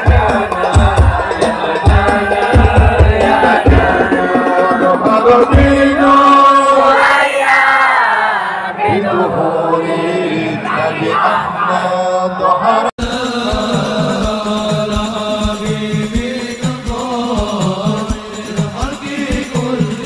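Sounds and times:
deep drum beats: 0.0s - 6.5s, 13.0s - 20.0s
devotional song chanted: 0.0s - 20.0s.

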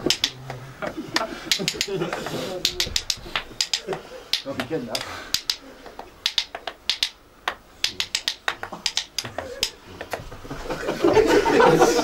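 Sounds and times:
murmuring voices: 0.0s - 5.9s, 8.7s - 12.0s
wooden spoons clacking: 0.0s - 10.4s.

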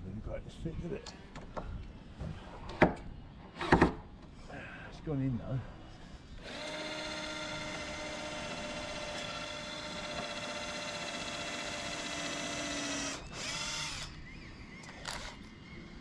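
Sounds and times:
cordless drill running: 6.4s - 14.2s, 15.0s - 15.4s.

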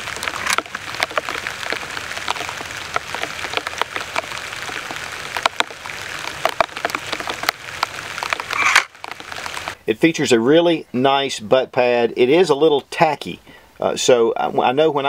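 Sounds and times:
steady rain falling: 0.0s - 11.6s.

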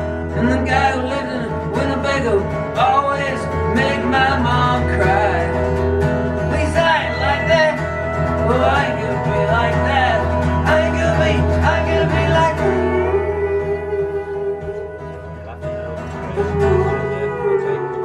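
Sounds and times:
acoustic guitar strumming: 0.0s - 18.0s
pedal steel guitar notes: 0.0s - 18.0s.

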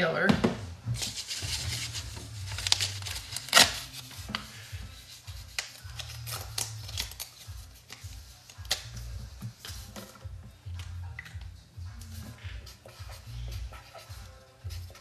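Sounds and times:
quiet background music: 0.0s - 15.0s
paper rustling: 0.9s - 10.2s.

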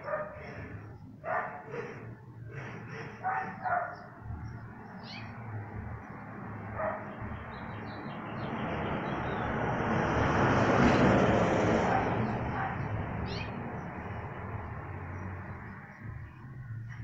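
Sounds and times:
dog barking: 0.0s - 0.6s, 1.2s - 1.9s, 3.2s - 4.2s, 6.7s - 7.2s, 11.8s - 12.9s.

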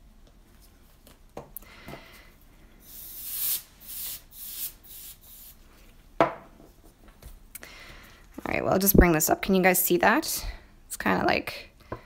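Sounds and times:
compressed air hissing bursts: 2.8s - 5.6s.

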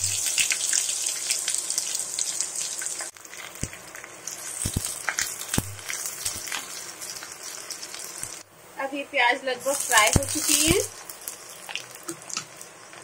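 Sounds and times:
onions sizzling in oil: 0.0s - 13.0s.

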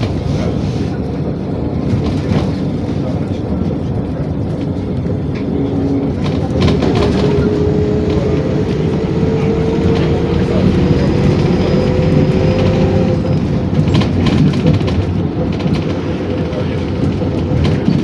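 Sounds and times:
bus body rattles: 0.0s - 18.0s
bus engine rumble and whine: 0.0s - 18.0s.

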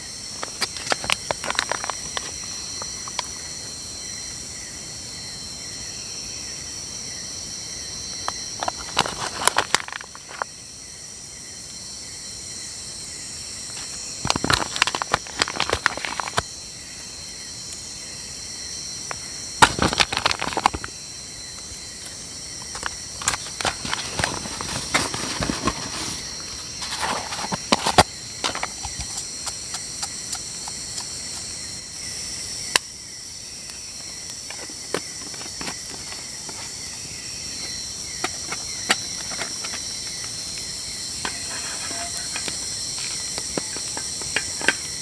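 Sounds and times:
crickets chirping: 0.0s - 45.0s
spoon scraping foil pouch: 41.2s - 43.2s.

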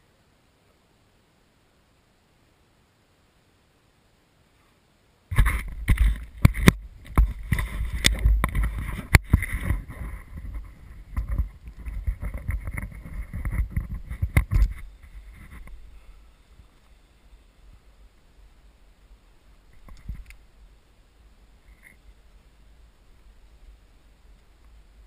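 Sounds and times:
knocks from skis and poles: 5.3s - 14.8s
wind rumbling on microphone: 5.3s - 25.0s
skis scraping through snow: 7.2s - 16.6s.

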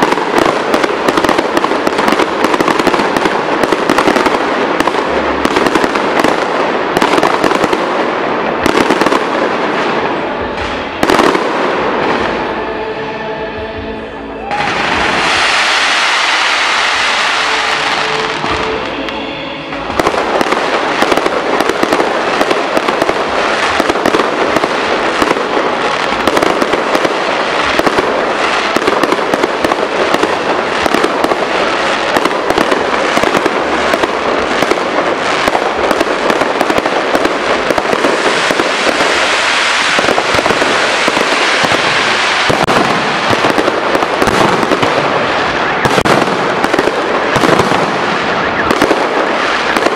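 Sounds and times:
fireworks crackling pops and bangs: 0.0s - 12.5s, 14.5s - 49.9s
fireworks rushing hiss: 14.5s - 19.0s, 20.2s - 49.9s.

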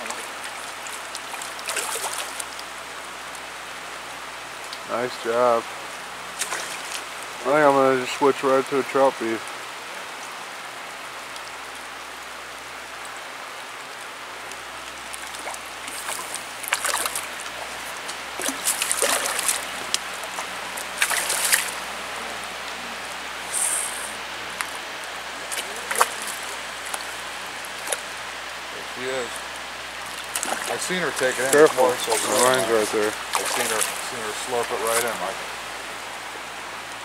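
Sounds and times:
fish splashing: 0.0s - 2.9s, 6.3s - 7.2s, 14.7s - 35.6s
stream rushing: 0.0s - 37.0s.

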